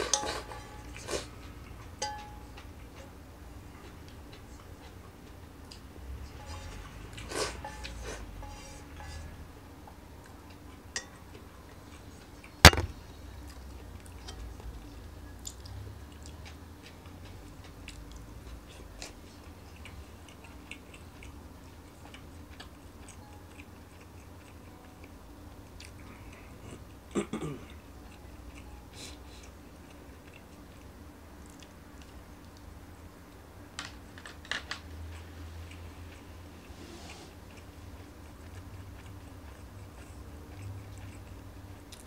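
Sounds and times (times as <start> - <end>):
close chewing: 0.7 - 32.7, 34.0 - 42.0
chopsticks clicking against pan: 2.0 - 3.0
sharp loud knock: 12.7 - 12.9.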